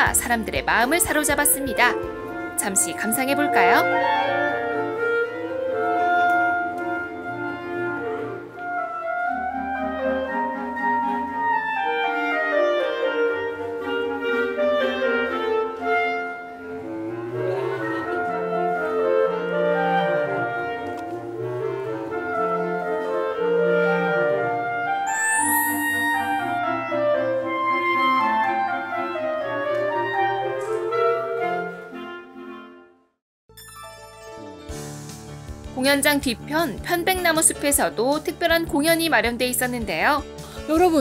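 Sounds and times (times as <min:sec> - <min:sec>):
clarinet quartet playing: 0:00.6 - 0:32.9.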